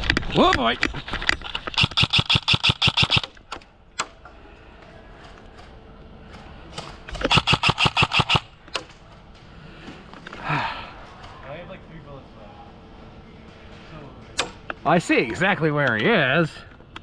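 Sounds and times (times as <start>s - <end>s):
airsoft rifle full-auto bursts: 1.8s - 3.3s, 7.2s - 8.5s.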